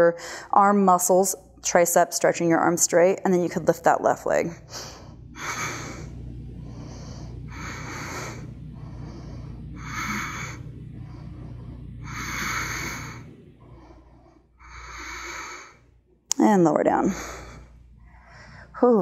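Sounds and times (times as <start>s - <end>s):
woman breathing with effort: 0.2s - 0.5s, 4.5s - 16.0s, 17.0s - 18.8s.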